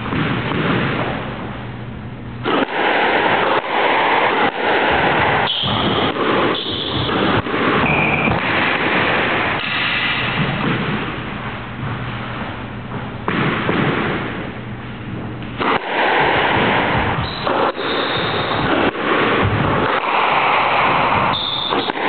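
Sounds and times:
squash ball hits echoing: 0:00.0 - 0:01.6, 0:02.4 - 0:22.0
shoes squeaking on court floor: 0:07.9 - 0:08.4.

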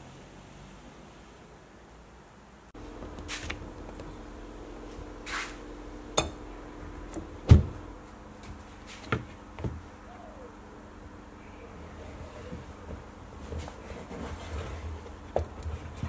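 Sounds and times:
steady low hum: 0:01.9 - 0:16.0
heavy thump: 0:07.4 - 0:07.9.

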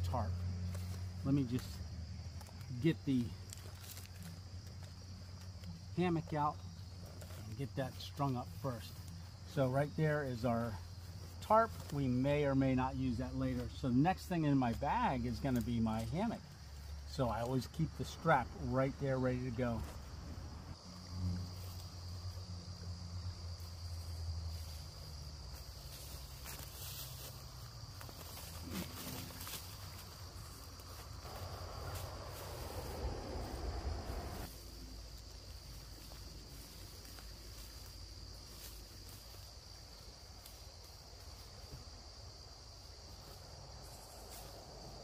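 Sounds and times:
insects chirring: 0:00.0 - 0:45.0
faint low rumble: 0:19.6 - 0:39.4
low rumble: 0:31.2 - 0:34.6.

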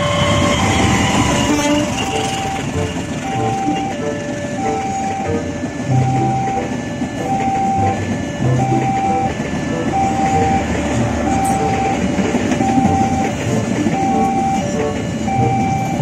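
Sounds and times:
level-crossing warning bell: 0:00.0 - 0:16.0
train wheels rumbling on rails: 0:00.0 - 0:16.0.

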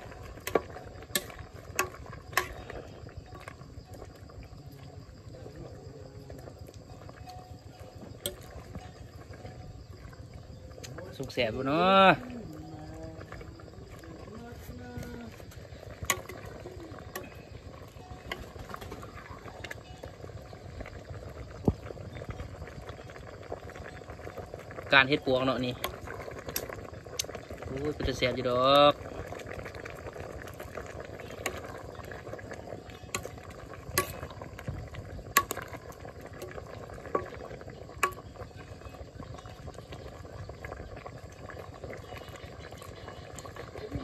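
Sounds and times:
pot simmering and bubbling: 0:00.0 - 0:44.0.

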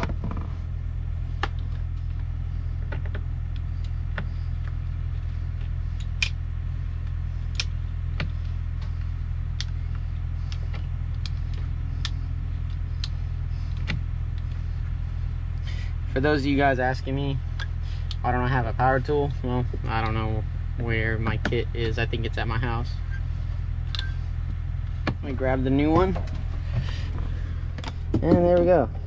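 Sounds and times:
low engine hum: 0:00.0 - 0:29.0.

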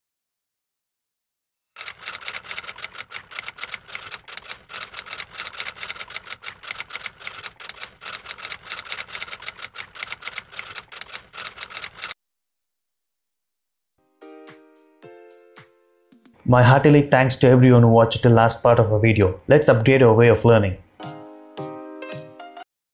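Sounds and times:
typewriter keystroke clicks: 0:02.3 - 0:12.2.

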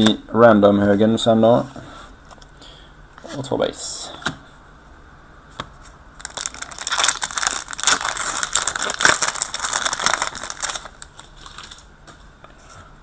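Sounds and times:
foil wrapper crinkling and tearing: 0:06.2 - 0:11.9.

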